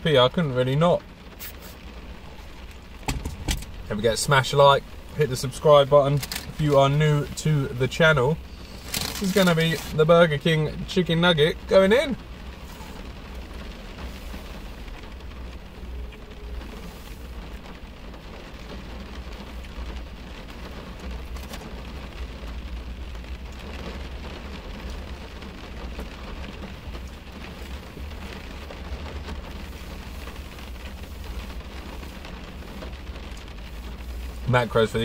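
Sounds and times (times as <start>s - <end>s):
heavy rain on car roof: 0.0s - 35.0s
low rumble: 2.0s - 5.6s.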